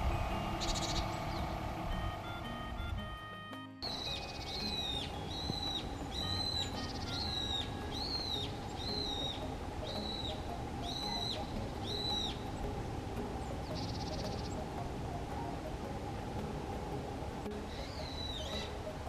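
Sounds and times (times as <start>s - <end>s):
bird whistled call: 0.0s - 12.6s, 17.6s - 18.9s
low background noise: 0.0s - 19.0s.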